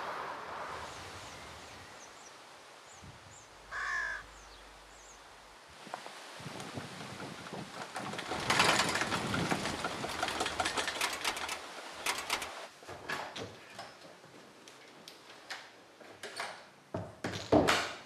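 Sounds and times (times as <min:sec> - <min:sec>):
wooden windmill rattling: 0:03.7 - 0:13.4.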